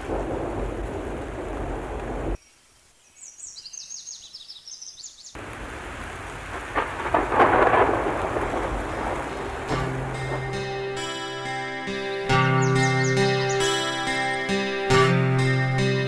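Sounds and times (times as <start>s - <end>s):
heavy rain: 0.0s - 2.4s, 5.4s - 14.4s
rumbling thunder: 0.0s - 2.4s, 5.4s - 11.0s
birds chirping: 1.6s - 5.7s, 6.7s - 14.9s.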